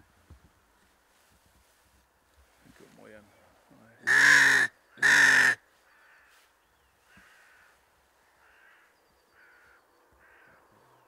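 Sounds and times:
crows cawing: 4.0s - 10.7s.

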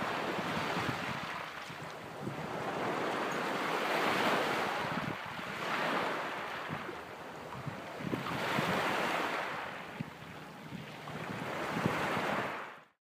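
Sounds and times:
waves washing onto pebbles: 0.0s - 6.9s
wind on microphone: 0.0s - 12.7s.

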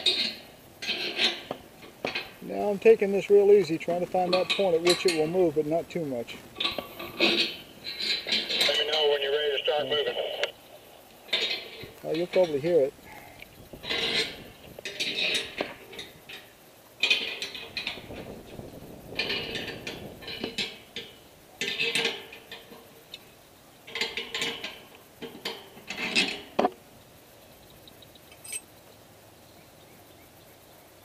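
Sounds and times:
metal clamp creaking on pole: 0.0s - 2.4s, 3.8s - 5.6s, 6.6s - 9.0s, 11.3s - 12.9s, 13.8s - 16.4s, 17.0s - 22.8s, 28.3s - 28.6s.

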